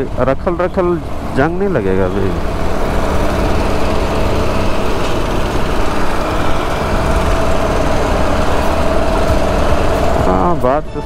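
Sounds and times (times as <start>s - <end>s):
heavy engine rumbling: 0.0s - 11.0s.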